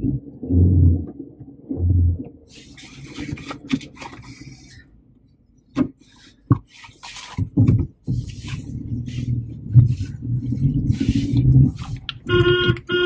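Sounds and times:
rustling and rubbing: 2.5 - 4.8, 5.9 - 12.9.

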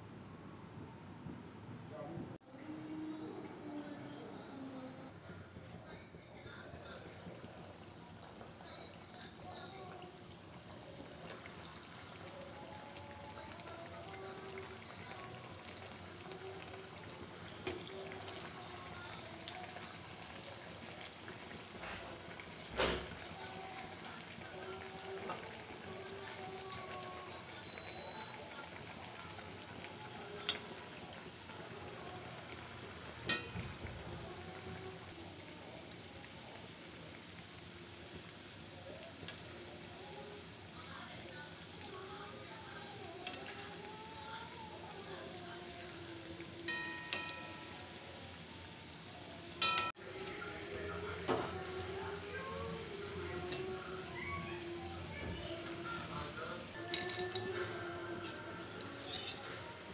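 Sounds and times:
oil sizzling and crackling: 5.1 - 59.9
metal ladle clinking on pan: 33.3 - 33.7, 46.7 - 47.7, 49.6 - 49.9, 56.9 - 57.6.

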